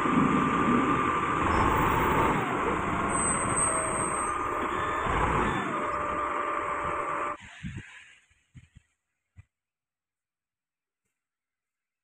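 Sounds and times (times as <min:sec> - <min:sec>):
wheel loader diesel engine: 0:00.0 - 0:07.4
whine sliding in pitch: 0:00.0 - 0:07.4.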